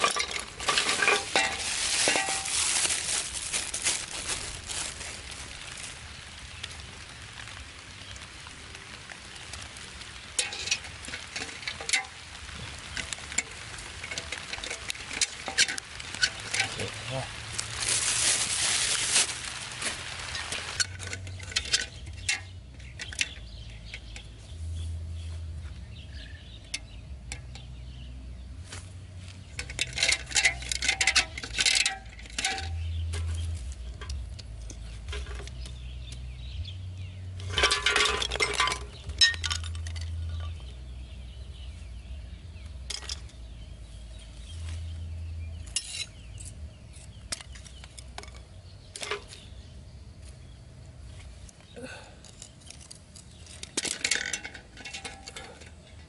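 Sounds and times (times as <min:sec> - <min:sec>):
clinks and scrapes of handling: 0:00.0 - 0:05.8, 0:10.3 - 0:25.8, 0:28.6 - 0:36.6, 0:37.3 - 0:40.8, 0:42.8 - 0:56.0.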